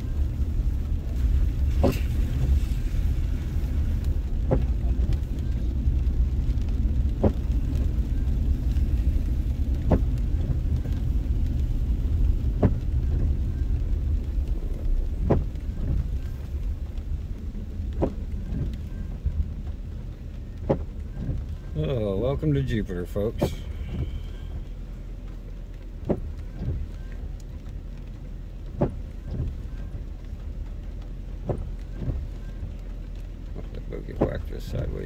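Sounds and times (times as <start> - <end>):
car engine and tyres rumbling: 0.0 - 35.0
windshield wiper knocks: 4.4 - 4.8, 9.8 - 10.6, 12.5 - 13.3, 15.2 - 16.0, 17.9 - 18.7, 20.6 - 21.4, 31.4 - 32.2.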